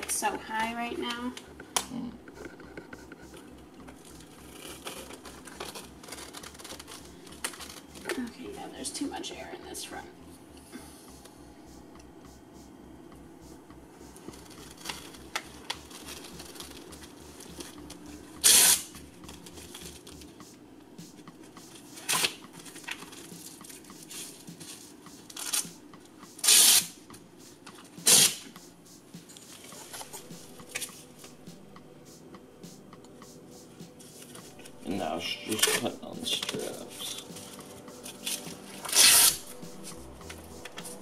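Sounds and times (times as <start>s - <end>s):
velcro straps ripping: 18.4s - 20.0s, 26.4s - 26.9s, 28.1s - 28.4s, 38.2s - 39.8s.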